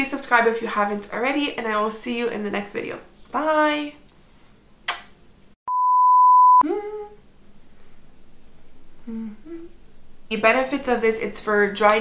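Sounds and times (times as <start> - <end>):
kissing smack: 4.9 - 5.2
electronic bleep tone: 5.7 - 6.6.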